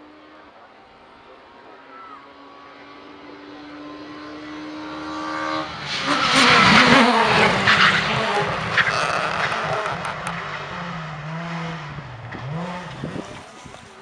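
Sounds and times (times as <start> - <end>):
rally car engine at high revs: 2.3 - 14.0
car passing at full speed: 3.6 - 14.0
engine cracks: 6.7 - 10.7.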